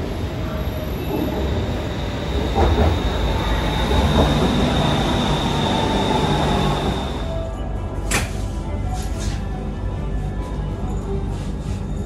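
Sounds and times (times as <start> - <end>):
train wheels rumbling on rails: 0.0 - 7.5
high-pitched train whine: 0.0 - 7.8.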